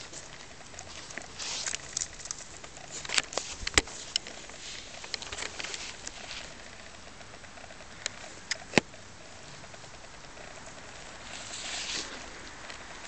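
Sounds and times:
scratchy rustling in wicker basket: 0.0s - 6.9s, 10.5s - 13.0s
sharp clicks: 0.0s - 9.0s.

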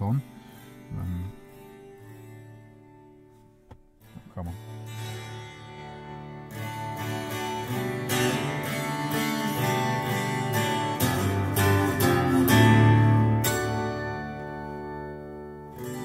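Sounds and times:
strummed acoustic guitar music: 0.0s - 16.0s.

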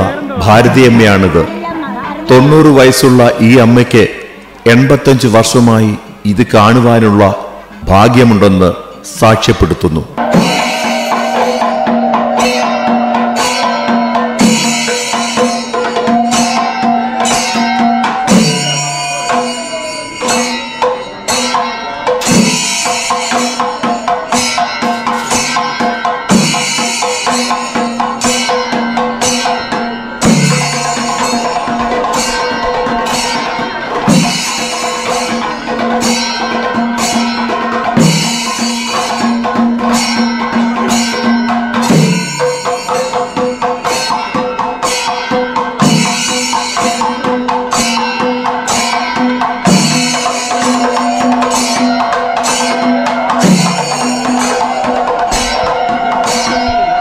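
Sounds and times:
fast percussion ensemble drumming: 10.1s - 57.0s
held drone note: 10.2s - 21.8s, 48.7s - 57.0s
wavering melody line: 10.2s - 43.5s, 48.0s - 57.0s.

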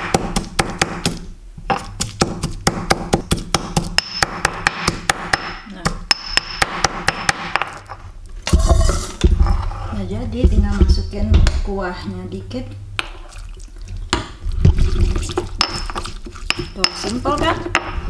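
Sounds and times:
pestle pounding in stone mortar: 0.0s - 9.4s, 14.1s - 18.0s.

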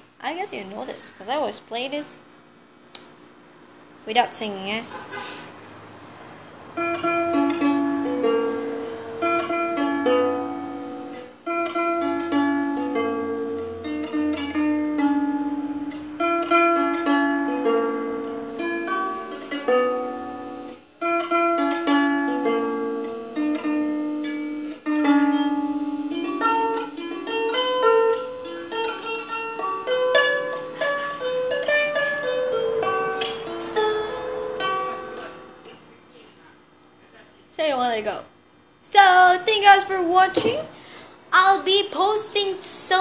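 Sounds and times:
harp plucked slow melody: 6.8s - 35.8s.

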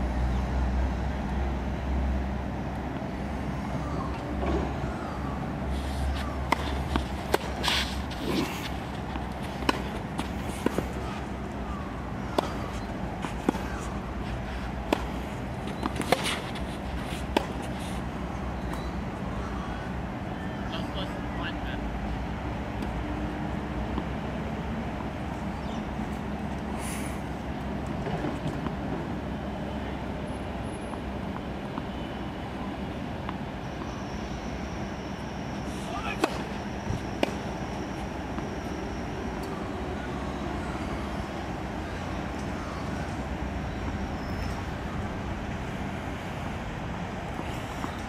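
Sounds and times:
low outdoor rumble: 0.0s - 48.0s
tennis balls struck by racquets: 6.1s - 19.6s, 35.9s - 38.4s.

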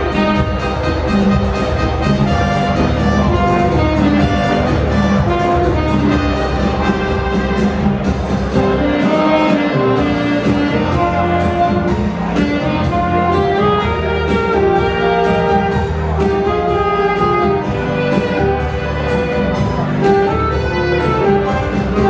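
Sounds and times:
recorded bass and strings accompaniment: 0.0s - 22.0s
saxophone duet: 0.0s - 22.0s.

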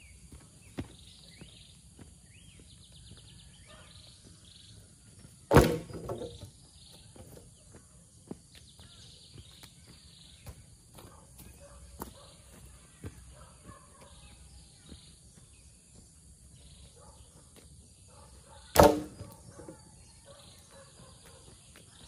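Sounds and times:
insects chirping: 0.0s - 22.0s
wooden poles thudding on dirt: 5.4s - 7.5s, 18.7s - 19.8s.

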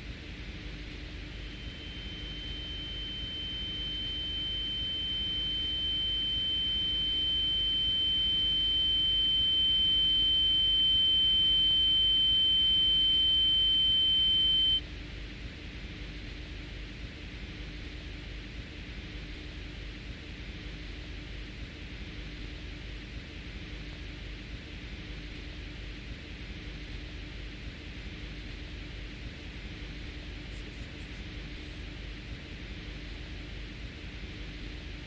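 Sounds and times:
faint low hum: 0.8s - 14.8s, 29.1s - 33.2s
high-pitched electronic beep tone: 1.5s - 14.8s.

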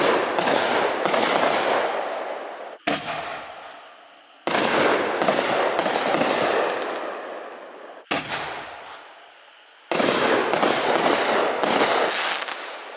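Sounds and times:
firework shells crackling: 4.6s - 7.7s, 10.0s - 12.9s.

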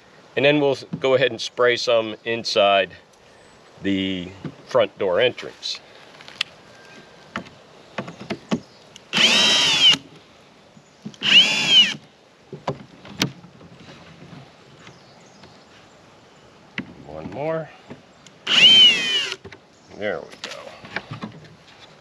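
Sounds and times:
cordless drill spinning: 9.1s - 10.0s, 11.2s - 12.0s, 18.4s - 19.4s
light clicks and knocks: 19.4s - 22.0s.

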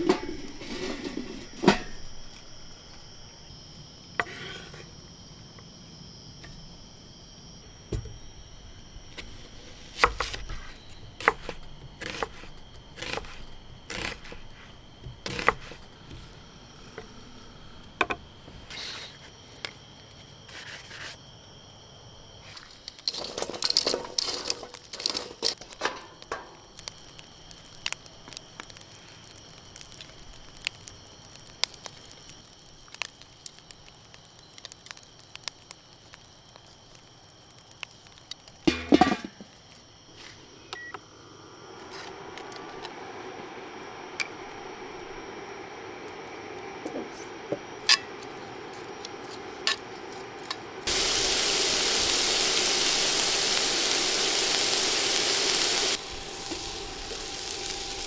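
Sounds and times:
grill lid clanking: 0.0s - 2.2s, 38.7s - 39.4s
insects chirring: 0.0s - 58.0s.

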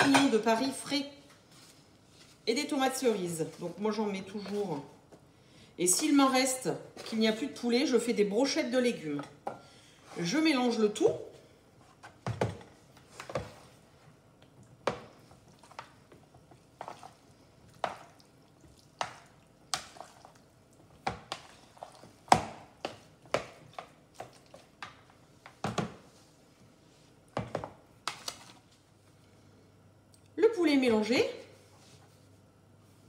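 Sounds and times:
wooden utensils knocking plastic bowls: 0.0s - 0.5s.

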